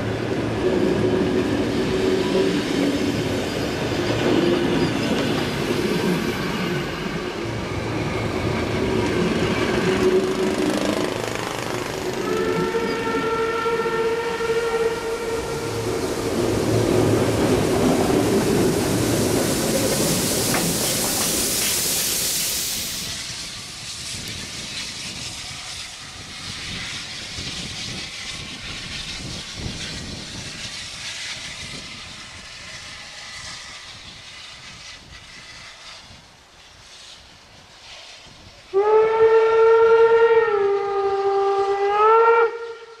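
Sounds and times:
distant steam train running: 0.0s - 43.0s
steam locomotive hiss and rumble: 0.0s - 43.0s
steam whistle: 12.2s - 16.5s, 38.7s - 43.0s.

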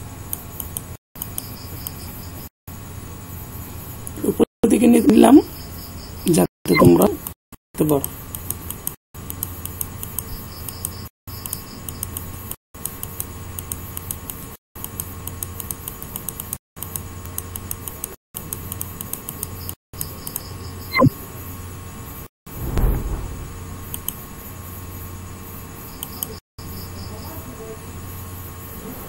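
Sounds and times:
computer mouse clicking: 8.0s - 12.2s.

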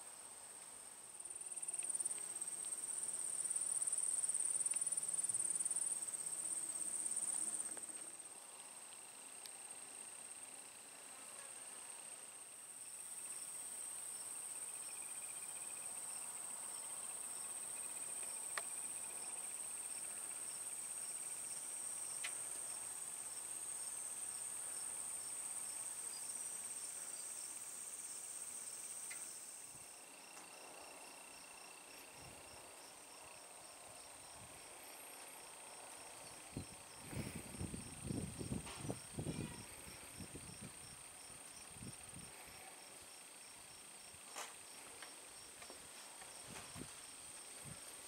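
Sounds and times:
insects trilling: 25.2s - 45.5s.

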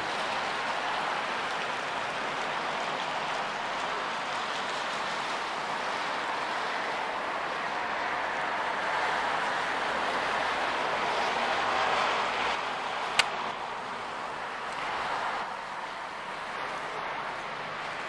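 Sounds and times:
tyres hissing on wet pavement: 0.0s - 18.0s.

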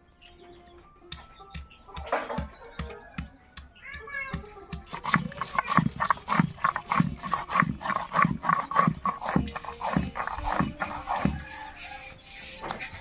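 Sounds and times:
grinding stone scraping on stone slab: 4.9s - 13.0s.

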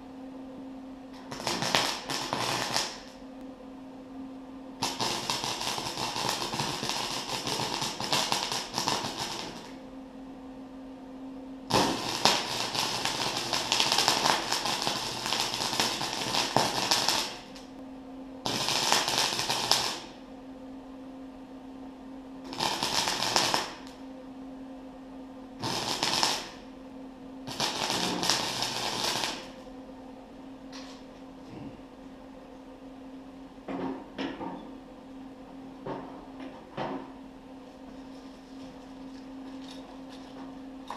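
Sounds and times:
welder humming: 0.0s - 32.1s
welding arc crackling: 1.2s - 3.2s, 4.8s - 9.8s, 11.7s - 17.7s, 18.4s - 20.2s, 22.4s - 24.0s, 25.6s - 26.6s, 27.5s - 29.6s.

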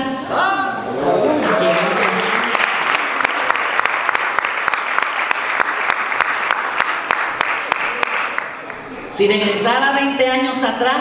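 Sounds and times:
crowd applauding: 1.3s - 9.1s.

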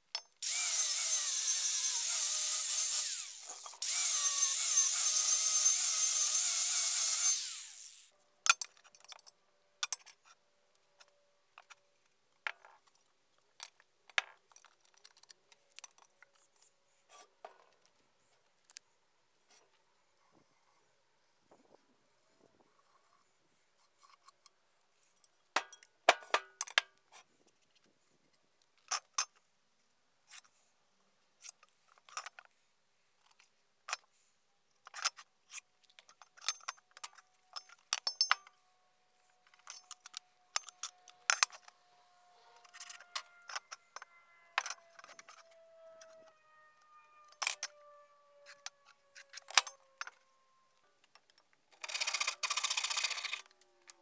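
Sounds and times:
tools clicking and clinking: 0.1s - 10.4s, 25.6s - 26.9s, 34.8s - 38.6s, 39.4s - 41.8s, 42.6s - 46.2s, 48.4s - 50.2s.

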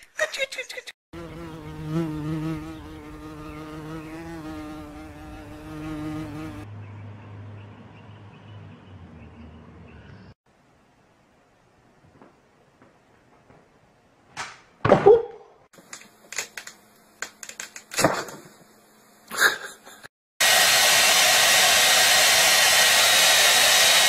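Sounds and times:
flying insect buzzing: 1.2s - 6.6s.

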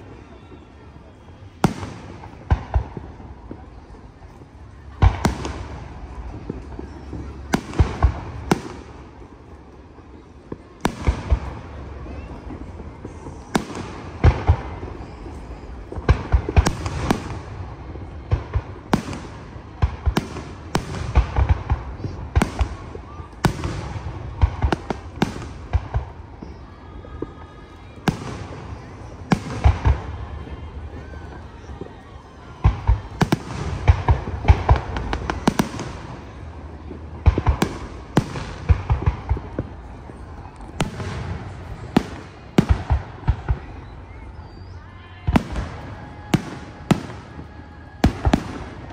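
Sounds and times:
fireworks bursting: 0.0s - 48.9s.

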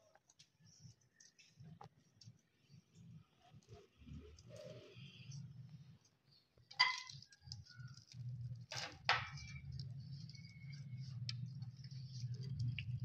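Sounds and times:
chewing and mouth clicks: 7.0s - 8.7s, 9.4s - 13.0s.

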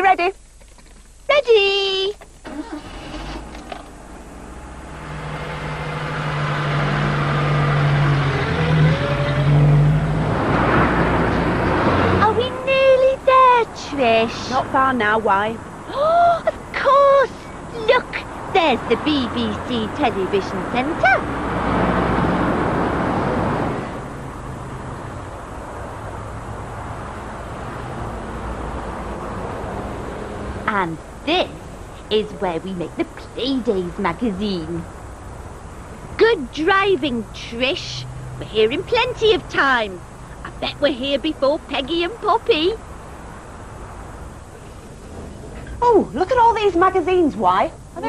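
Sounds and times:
rising engine whine: 2.4s - 16.7s
van engine accelerating: 2.4s - 48.0s
vehicle passing loudly: 4.0s - 15.9s, 17.2s - 30.9s, 34.0s - 45.8s.

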